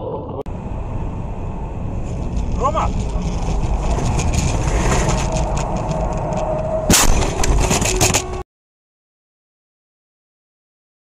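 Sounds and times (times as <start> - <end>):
road and wind noise: 0.0 - 8.4
knocks and rattles: 2.2 - 8.4
loud car crash impact: 6.8 - 8.2.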